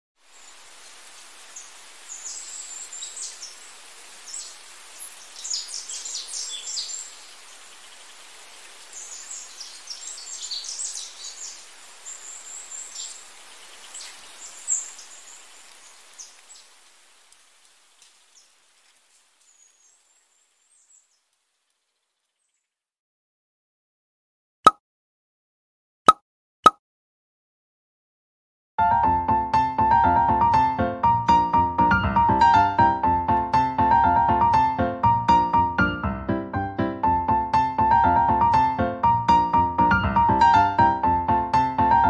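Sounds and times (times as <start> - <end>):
steady hiss: 0.2 - 21.9
small birds twittering: 0.2 - 22.8.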